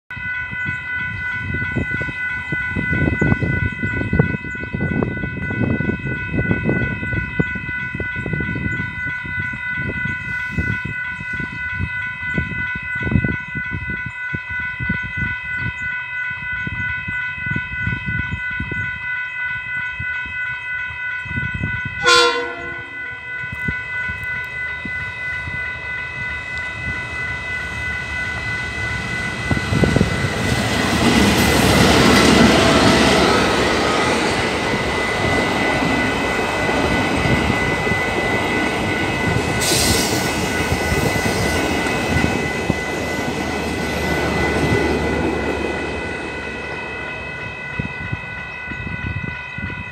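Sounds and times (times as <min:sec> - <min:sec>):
level crossing bell ringing: 0:00.1 - 0:49.9
train rumble: 0:21.2 - 0:49.9
train horn blast: 0:22.0 - 0:23.3.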